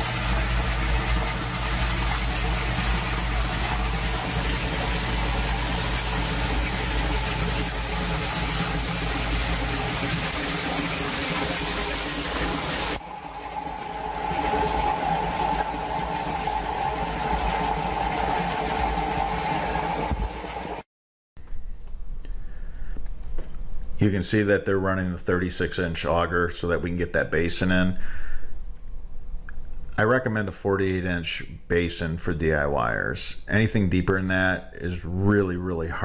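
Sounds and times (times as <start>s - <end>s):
water gushing from drain pipe: 0.0s - 20.8s.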